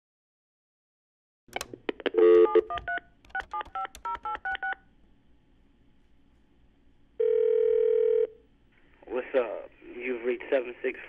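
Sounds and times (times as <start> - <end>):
telephone dial tone: 1.6 - 4.8, 7.2 - 8.3
telephone ringing tone: 2.2 - 4.8, 7.2 - 8.4
keypad dialing beeps: 2.3 - 4.8.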